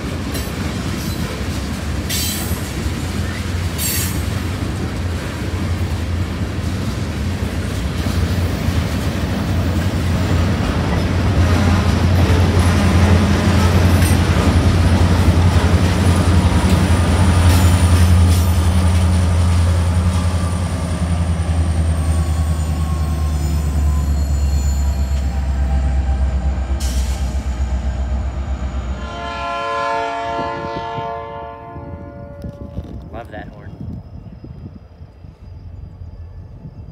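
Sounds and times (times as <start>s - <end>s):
train wheels rumbling on rail: 0.0s - 36.9s
high wheel squeal: 20.2s - 29.0s, 33.8s - 36.9s.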